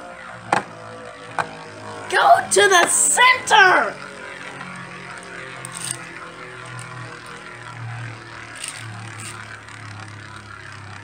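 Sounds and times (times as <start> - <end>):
spinning tops whirring: 0.0 - 11.0
spinning tops clacking together: 4.0 - 10.4.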